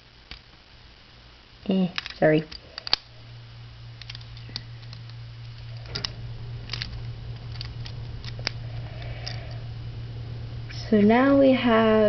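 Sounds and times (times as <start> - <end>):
steady low hum: 0.0 - 12.0
plastic toy parts clicking: 1.9 - 3.0, 4.0 - 5.1, 6.7 - 8.6, 9.2 - 9.5.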